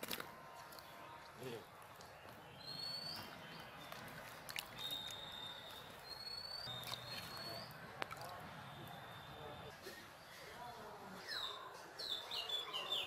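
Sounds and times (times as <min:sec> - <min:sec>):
bird whistling high calls: 0:04.8 - 0:07.7.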